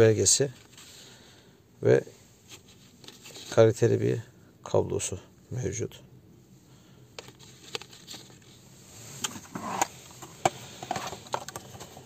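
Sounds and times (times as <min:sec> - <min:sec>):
plastic tray and cable handling: 0:07.2 - 0:08.5, 0:09.2 - 0:12.0.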